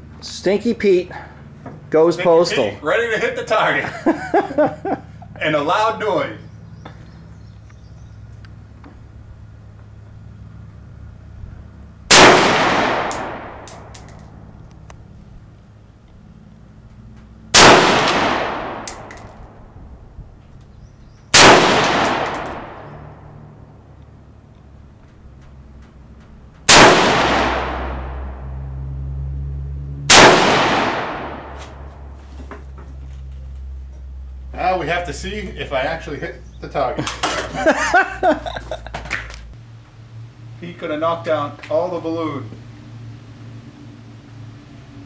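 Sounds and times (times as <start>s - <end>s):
rifle shot with echo: 12.1s - 13.8s, 17.5s - 19.2s, 21.3s - 23.0s, 26.7s - 28.3s, 30.1s - 31.9s
light metallic clinks: 13.1s - 14.5s, 18.9s - 19.5s, 21.8s - 23.0s.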